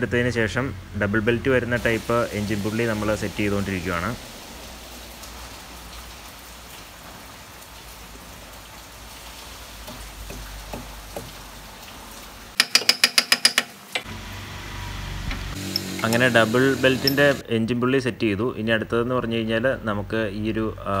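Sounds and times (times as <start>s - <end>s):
ratchet wrench clicking: 12.6s - 14.1s, 15.6s - 17.4s.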